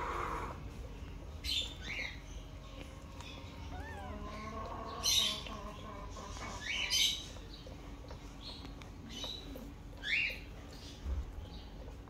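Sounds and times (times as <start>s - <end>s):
kitten mewing: 3.6s - 5.5s.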